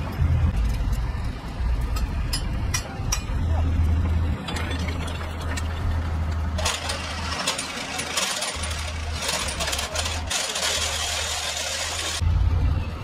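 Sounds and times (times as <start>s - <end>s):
truck engine running: 0.0s - 13.0s
steel chain clattering: 4.3s - 12.2s.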